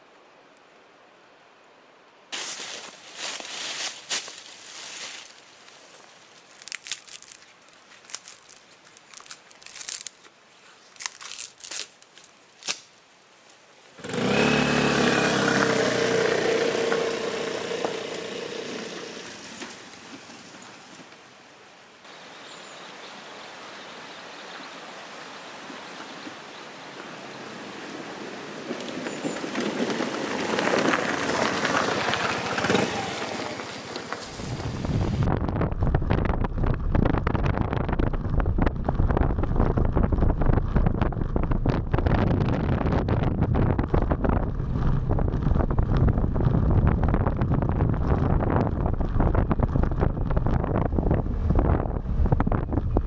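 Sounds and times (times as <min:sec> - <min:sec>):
birch bark tearing and crackling: 0:03.2 - 0:13.1
steady rushing noise: 0:33.8 - 0:53.0
loud rushing with low hum: 0:34.5 - 0:53.0.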